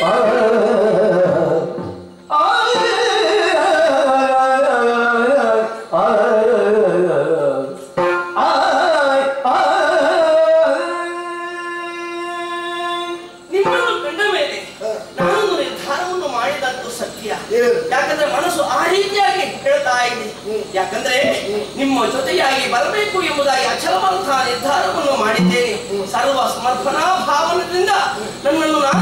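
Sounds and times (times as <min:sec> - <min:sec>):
person singing a verse: 0:00.0 - 0:16.0.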